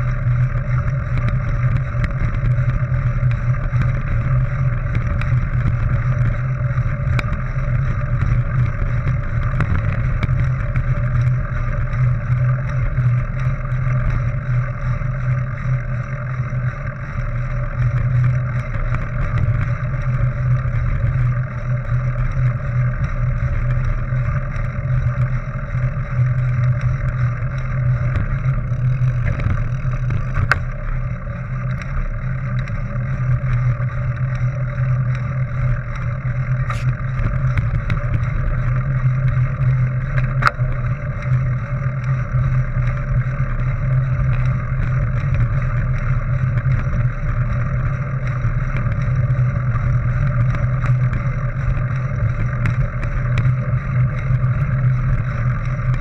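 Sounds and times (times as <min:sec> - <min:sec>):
bike tyres rolling over gravel: 0:00.0 - 0:56.0
small clicks: 0:00.0 - 0:56.0
wind noise on microphone: 0:36.6 - 0:42.4.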